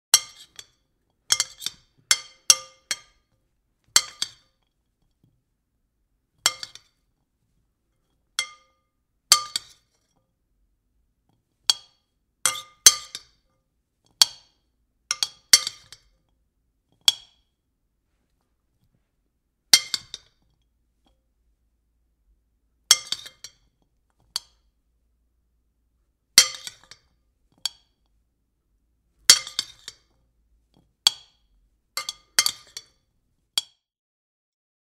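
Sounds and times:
spoon tapping against bowl: 0:32.0 - 0:33.0.

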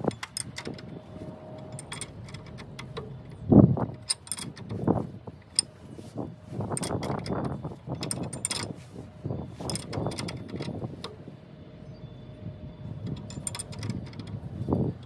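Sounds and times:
wrench clinking on metal: 0:01.6 - 0:04.8, 0:06.7 - 0:08.8, 0:09.6 - 0:10.8, 0:13.0 - 0:14.5.

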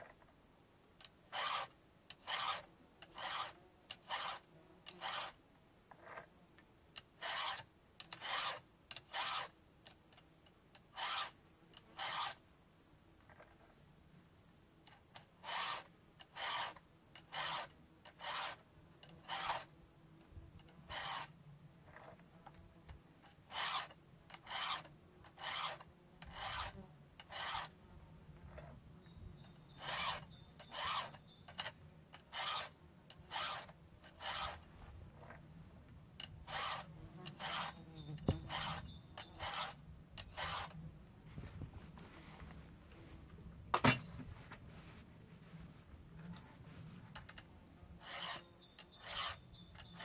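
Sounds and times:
file rasping on chainsaw chain: 0:01.0 - 0:05.4, 0:07.0 - 0:12.4, 0:14.9 - 0:19.7, 0:20.6 - 0:22.1, 0:23.2 - 0:27.8, 0:29.4 - 0:35.4, 0:36.2 - 0:40.8, 0:47.1 - 0:50.0.

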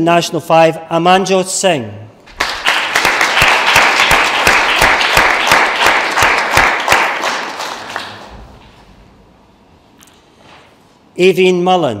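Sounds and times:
audience applauding: 0:02.3 - 0:08.4
nearby hands clapping: 0:02.3 - 0:08.7.

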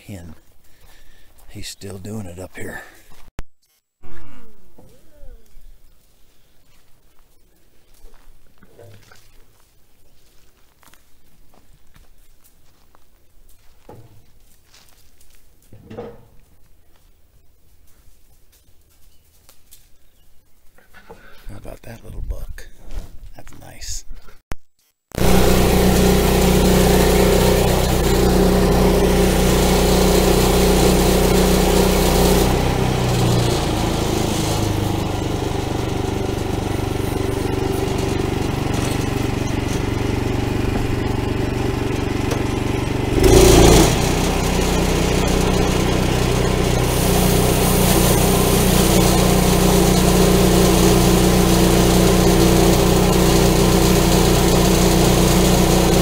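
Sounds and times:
short loud noise: 0:25.2 - 0:30.7
saw cutting log: 0:25.2 - 0:56.0
sawmill engine running: 0:25.2 - 0:56.0.

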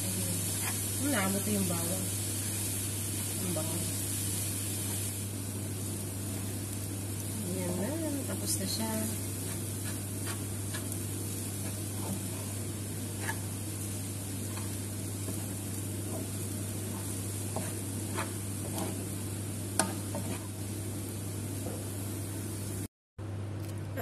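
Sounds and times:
food sizzling in a frying pan: 0:00.0 - 0:22.9
steady low hum: 0:00.0 - 0:24.0
wooden spoon scraping a pan: 0:00.4 - 0:01.0, 0:08.4 - 0:20.6.

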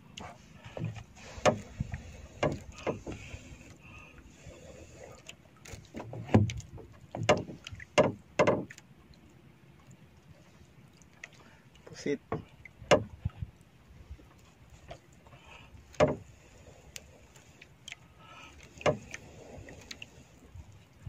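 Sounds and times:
knocks on wooden paddle: 0:08.0 - 0:08.7.

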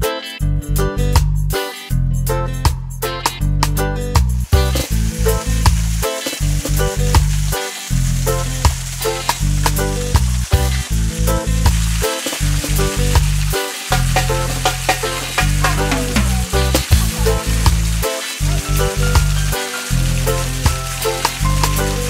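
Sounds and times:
background music with beat: 0:00.0 - 0:22.0
steady high hiss: 0:04.3 - 0:22.0.

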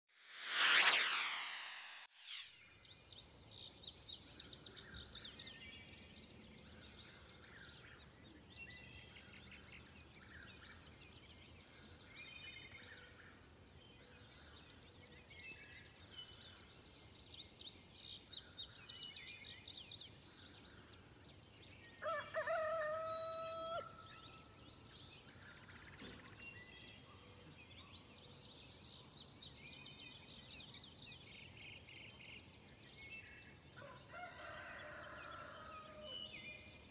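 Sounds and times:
rooster crowing: 0:22.0 - 0:24.0, 0:33.8 - 0:36.2.

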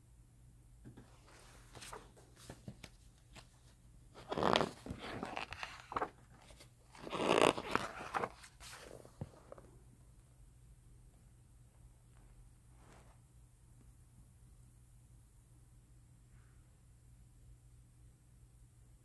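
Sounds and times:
book pages turning: 0:01.2 - 0:09.7.

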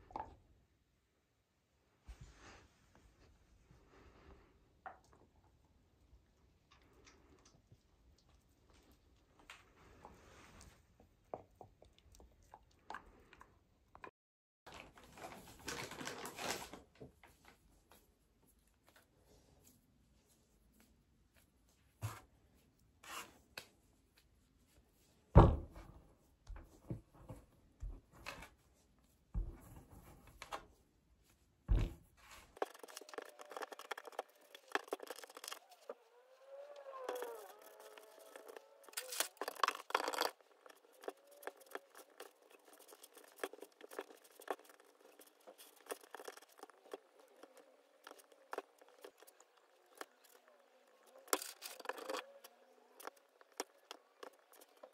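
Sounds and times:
hands patting and scraping clay: 0:37.1 - 0:50.3.

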